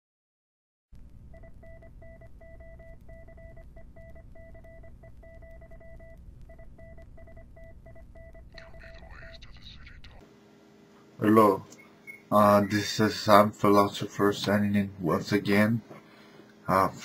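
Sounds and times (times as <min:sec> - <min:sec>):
low steady hum: 0:01.0 - 0:17.0
electronic beep pulses: 0:01.4 - 0:09.4, 0:11.7 - 0:12.9.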